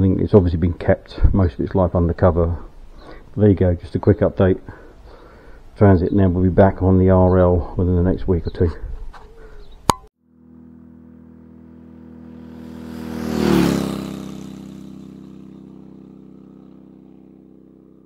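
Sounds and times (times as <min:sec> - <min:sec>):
vehicle passing by: 0:10.4 - 0:18.0.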